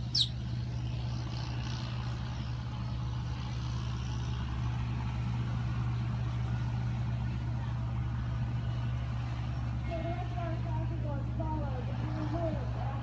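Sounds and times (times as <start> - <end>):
bird chirp: 0.0 - 0.4
low mechanical hum: 0.0 - 13.0.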